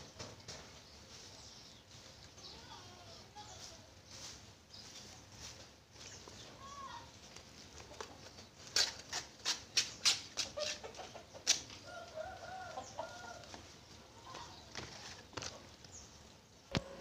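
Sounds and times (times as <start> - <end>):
chicken clucking: 10.4 - 13.7.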